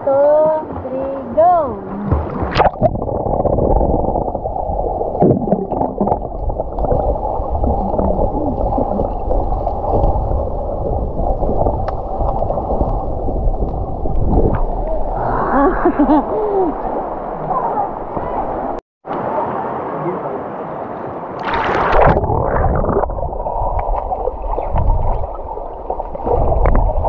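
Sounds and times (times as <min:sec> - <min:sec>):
underwater stream rushing: 0:00.7 - 0:27.0
small clicks and bubbling: 0:10.8 - 0:13.0.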